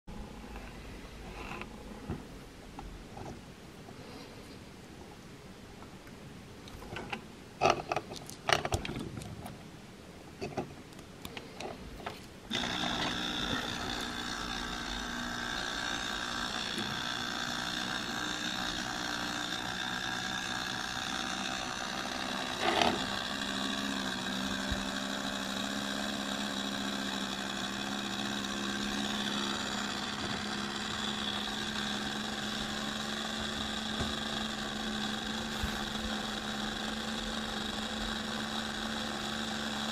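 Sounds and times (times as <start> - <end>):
small electric motor whirring: 12.5 - 39.9.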